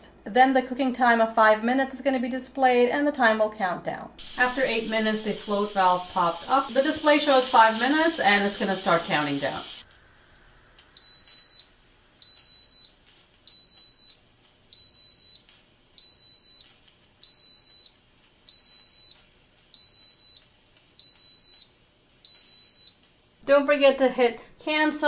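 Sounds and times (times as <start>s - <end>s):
pressure cooker beeping: 4.2s - 9.8s, 11.0s - 23.1s.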